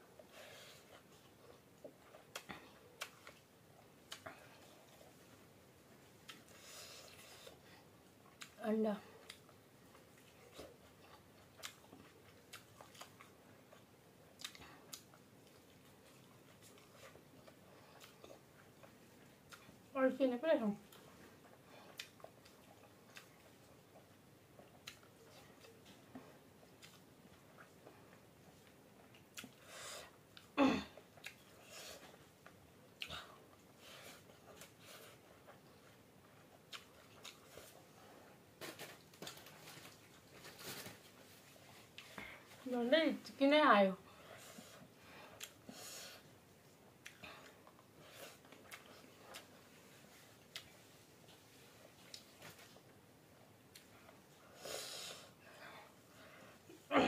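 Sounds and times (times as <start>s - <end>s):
soft chewing: 0.0s - 43.4s, 44.0s - 56.9s
lip smacks and clicks: 1.8s - 4.6s, 14.4s - 15.2s, 21.9s - 26.0s, 28.5s - 29.6s
soft mouth clicks and smacks: 1.8s - 5.2s, 9.2s - 19.8s, 20.8s - 29.7s, 30.3s - 33.2s, 34.5s - 37.8s, 45.4s - 45.6s, 47.0s - 52.8s, 53.7s - 54.2s.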